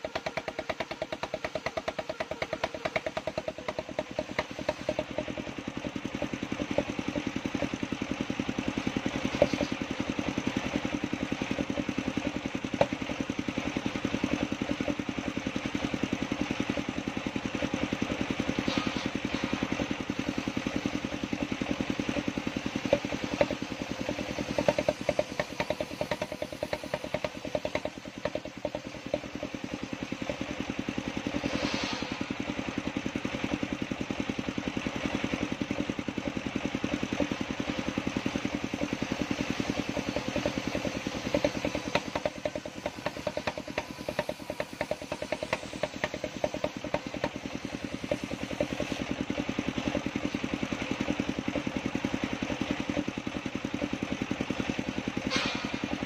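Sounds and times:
wood knocks and clatter: 0:00.0 - 0:07.7, 0:09.0 - 0:16.9, 0:17.9 - 0:31.4, 0:38.2 - 0:49.4
table circular saw running: 0:18.4 - 0:33.7, 0:35.1 - 0:51.2
hissing saw cut: 0:31.0 - 0:33.0, 0:38.2 - 0:49.4.

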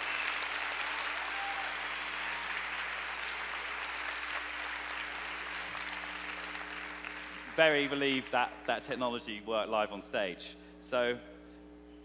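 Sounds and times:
audience applauding: 0:00.0 - 0:08.3.

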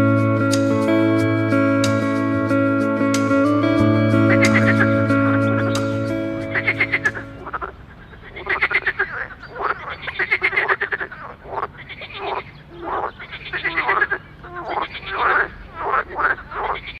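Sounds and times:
frog croaking: 0:06.6 - 0:17.0.

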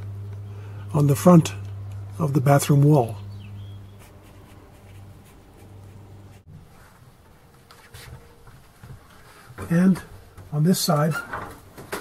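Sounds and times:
steady low hum: 0:00.0 - 0:11.9
faint rustling: 0:03.9 - 0:11.9.

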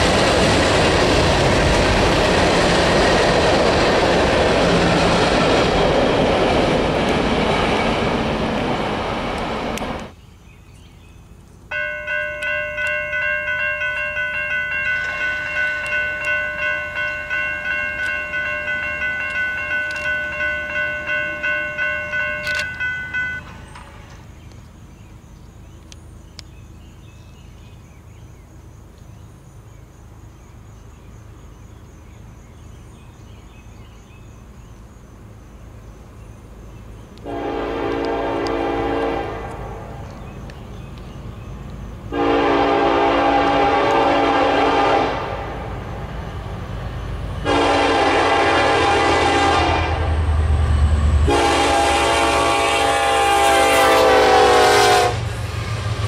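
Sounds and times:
locomotive engine rumble: 0:00.0 - 0:31.5, 0:34.2 - 0:56.0
crossing bell ringing: 0:11.7 - 0:24.2
locomotive air horn blasts: 0:37.2 - 0:39.8, 0:42.1 - 0:45.6, 0:47.4 - 0:50.4, 0:51.2 - 0:55.4.

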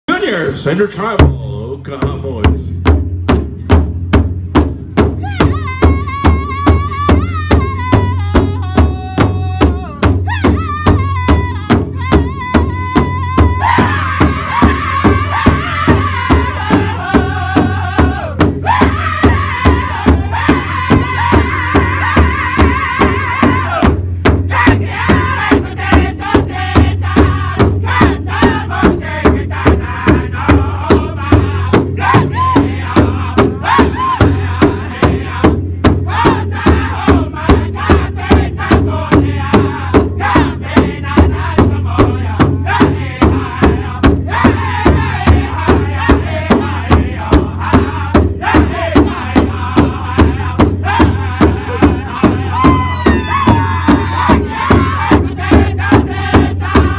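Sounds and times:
large drum steady beat: 0:00.1 - 0:56.9
group singing in unison: 0:12.2 - 0:56.9.

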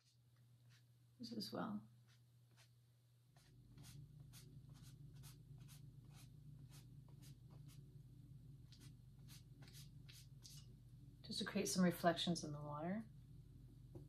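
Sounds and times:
brush swishing on canvas: 0:00.0 - 0:00.9, 0:02.0 - 0:07.8
low steady hum: 0:00.0 - 0:14.0.

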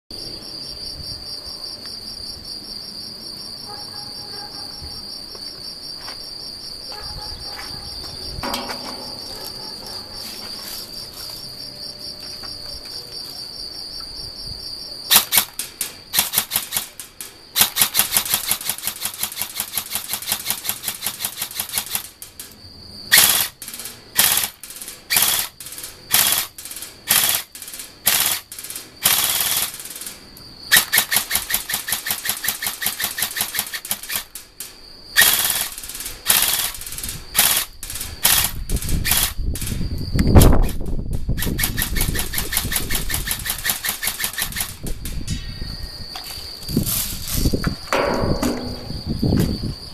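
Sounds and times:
crickets trilling: 0:00.1 - 0:49.9
airsoft rifle firing: 0:15.1 - 0:22.2, 0:23.1 - 0:34.4, 0:35.2 - 0:39.7, 0:41.4 - 0:44.8, 0:48.0 - 0:48.9.

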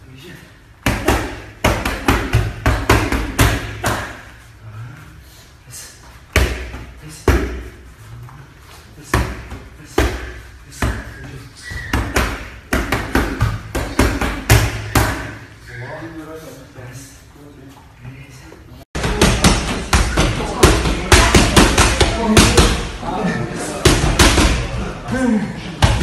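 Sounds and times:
punches slapping focus mitts: 0:11.9 - 0:15.4.

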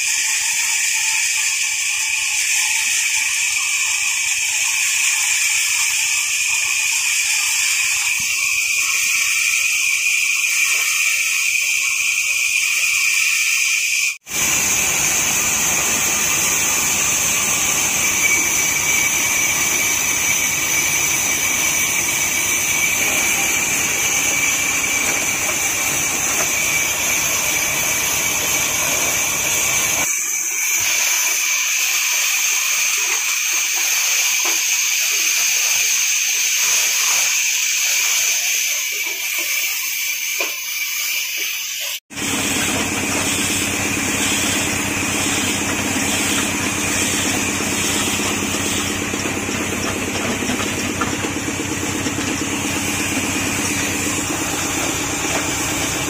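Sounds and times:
sawmill machinery whirring: 0:00.0 - 0:56.0
high even whine: 0:06.4 - 0:30.9, 0:42.1 - 0:56.0.

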